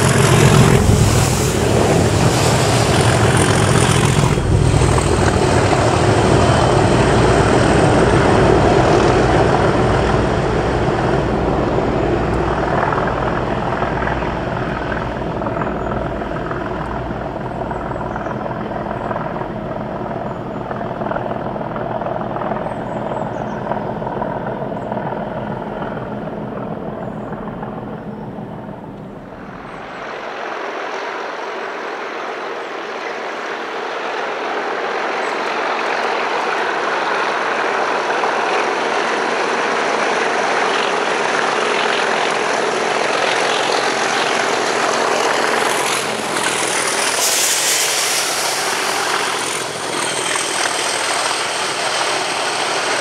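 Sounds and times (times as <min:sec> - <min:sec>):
diesel locomotive running: 0:00.0 - 0:53.0.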